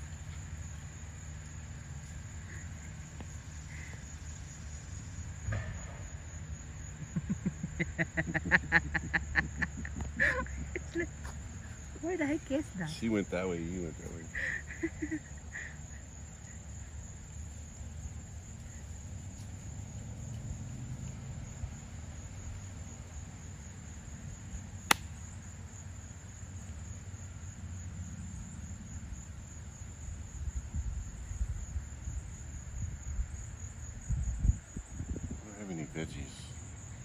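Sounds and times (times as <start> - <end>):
insects trilling: 0.0 - 37.0
sharp click: 24.9 - 25.1.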